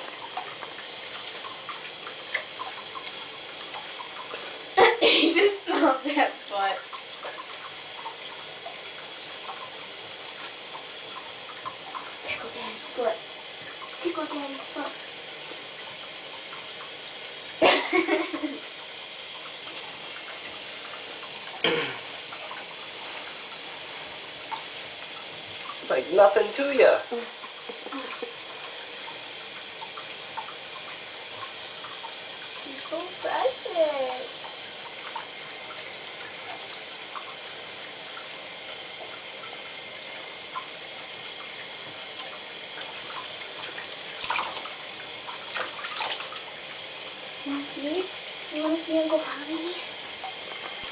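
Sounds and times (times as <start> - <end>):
water running into bathtub: 0.0 - 50.9
faint water splashes: 42.0 - 46.6.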